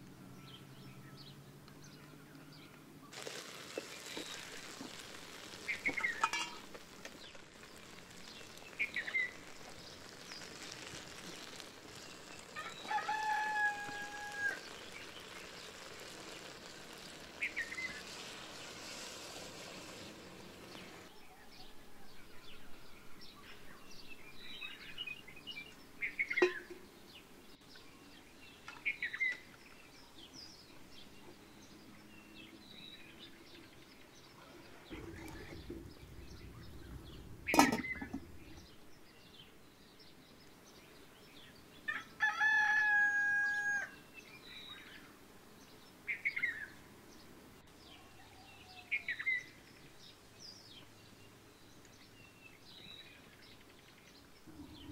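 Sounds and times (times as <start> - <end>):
chicken and small-bird calls: 0.4 - 39.6, 40.4 - 45.1, 45.7 - 54.9
rooster crowing: 12.5 - 14.8, 41.9 - 44.0.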